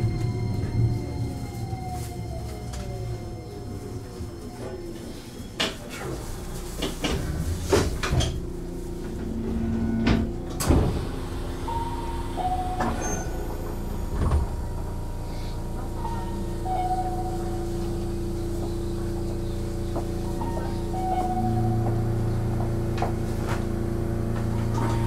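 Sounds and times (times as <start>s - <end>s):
train humming: 0.0s - 25.0s
two-note electronic chime: 20.4s - 22.3s.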